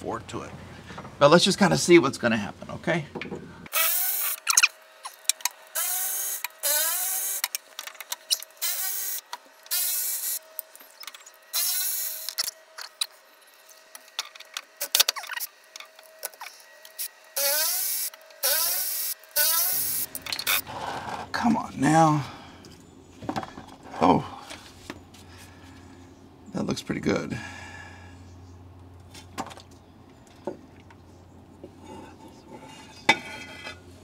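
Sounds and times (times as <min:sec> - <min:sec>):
electric ratchet motor whine: 0:03.7 - 0:20.7.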